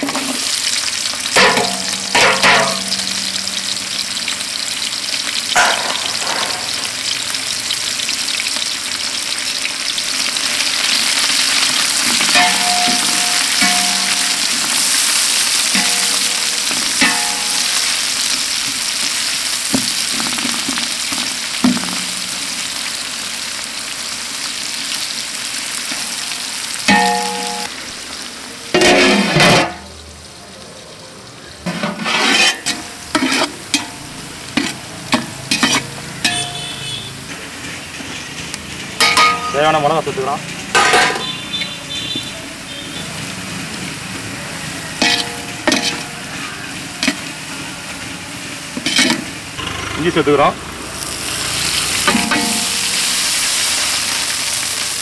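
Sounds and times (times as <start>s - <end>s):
onions sizzling in hot oil: 0.0s - 55.0s
metal lid clanking onto pot: 1.4s - 3.2s, 5.6s - 6.8s, 40.7s - 41.3s
metal ladle scraping a pot: 31.7s - 33.8s, 34.6s - 36.6s.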